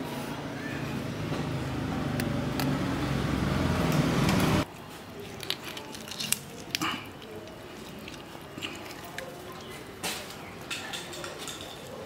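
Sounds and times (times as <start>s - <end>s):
vehicle engine running: 0.9s - 4.6s
wet squelches of raw meat handled: 4.7s - 10.5s.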